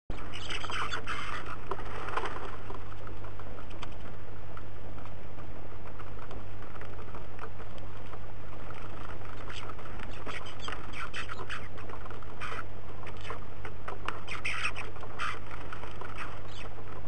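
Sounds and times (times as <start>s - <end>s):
bird calls and chatter: 0.1s - 4.0s, 8.8s - 17.0s
beaks pecking seed: 0.1s - 17.0s
low steady hum: 0.1s - 17.0s.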